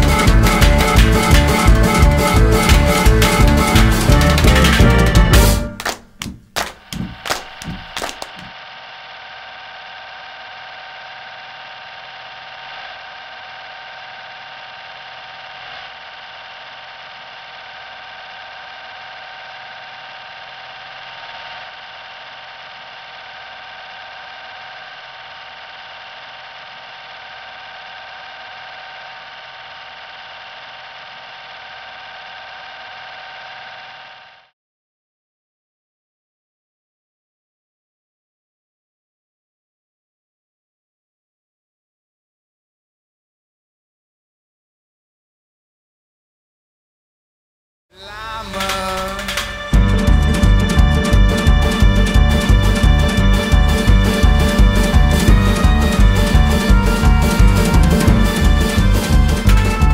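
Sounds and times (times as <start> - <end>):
song ending with sharp hits: 0.0 - 5.8.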